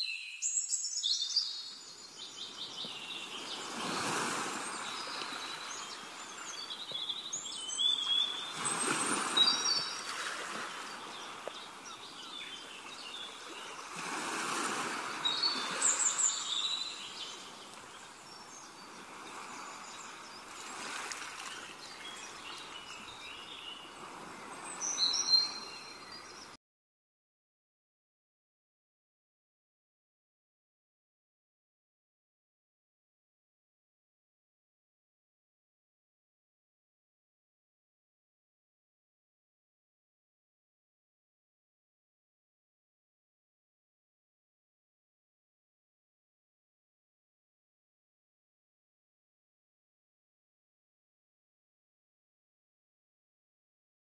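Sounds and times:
small birds chirping: 0.0s - 14.0s, 15.1s - 26.6s.

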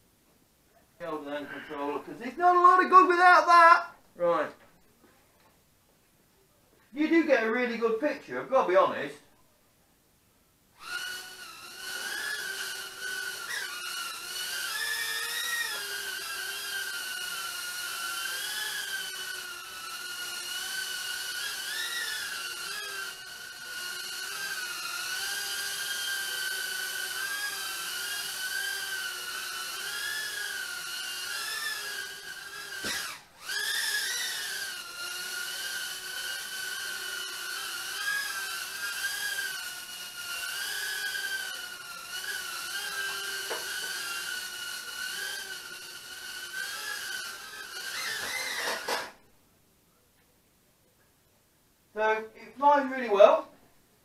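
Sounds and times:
quadcopter motors whining: 10.8s - 49.2s.

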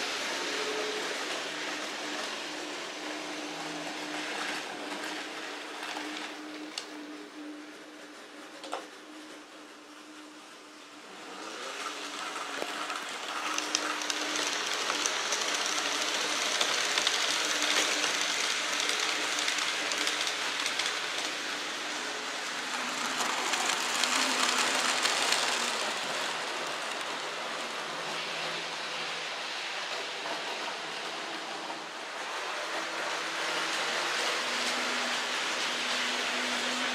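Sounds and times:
model train wheels rattling on rails: 11.3s - 28.1s.

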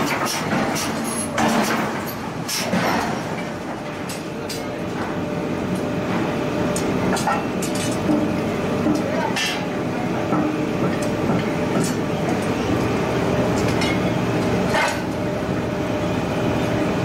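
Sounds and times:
heavy forging machinery running: 0.0s - 17.0s.

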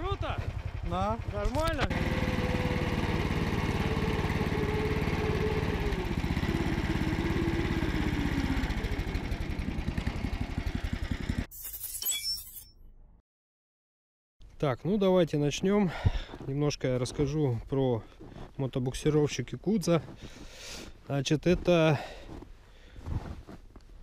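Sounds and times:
snow machine engine running: 0.0s - 11.5s.

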